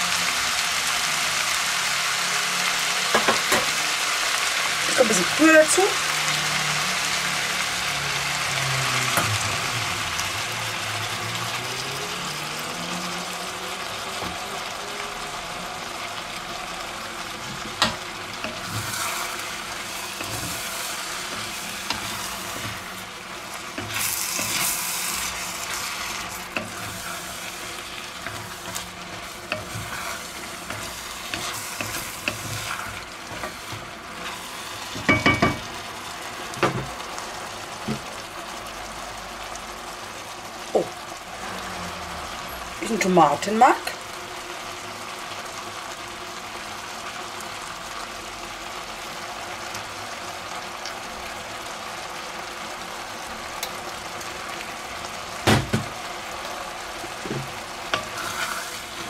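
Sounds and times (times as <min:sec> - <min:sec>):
food sizzling: 0:00.0 - 0:59.0
spatula stirring and scraping: 0:17.4 - 0:35.7, 0:57.2 - 0:59.0.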